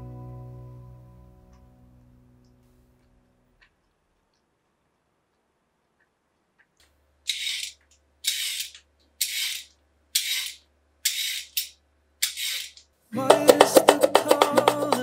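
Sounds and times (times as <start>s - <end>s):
plucked guitar music: 0.0s - 2.6s, 13.2s - 15.0s.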